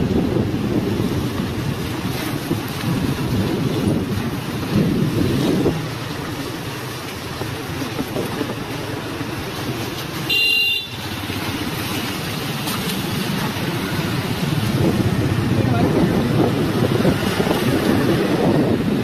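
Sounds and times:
wind buffeting microphone: 0.0s - 9.9s, 11.3s - 19.0s
vehicle horn honk: 10.3s - 11.1s.

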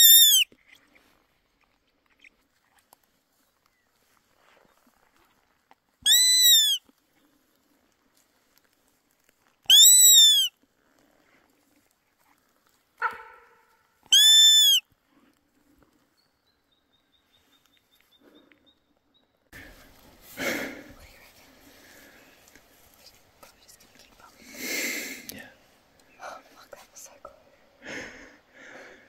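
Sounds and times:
deer call bleats: 6.1s - 6.8s, 13.0s - 14.8s.

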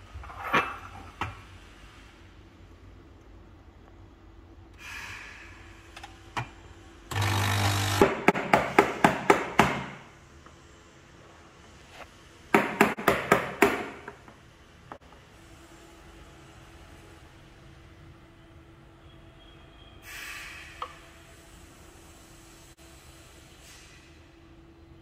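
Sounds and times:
steam hiss: 4.8s - 5.9s, 20.0s - 24.4s.

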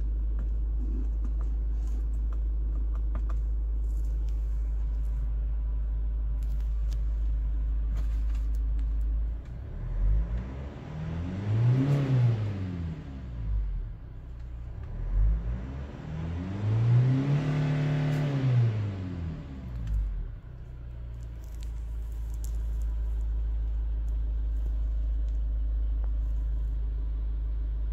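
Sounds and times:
car engine revving and idling: 0.0s - 27.9s.

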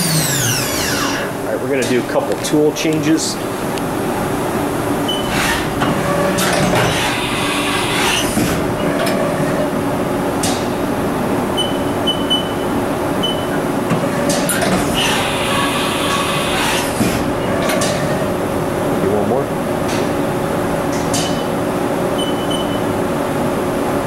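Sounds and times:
machine whir: 0.0s - 2.3s, 5.0s - 9.8s, 13.2s - 18.4s.

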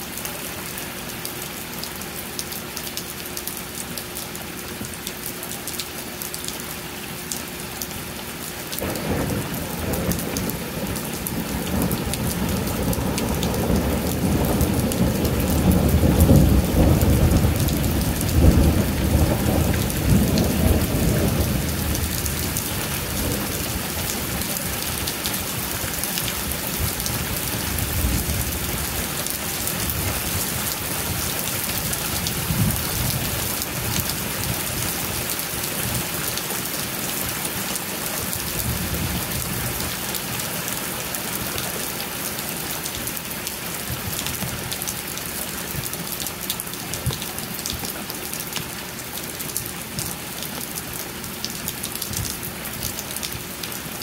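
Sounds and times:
steady rain falling: 0.0s - 54.0s
thunder rumbling: 8.8s - 34.9s.

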